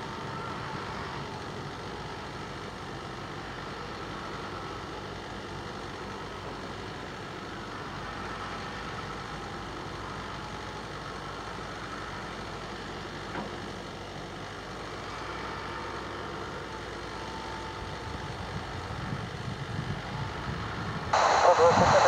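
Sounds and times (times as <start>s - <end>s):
jet engines taxiing: 21.1s - 22.0s.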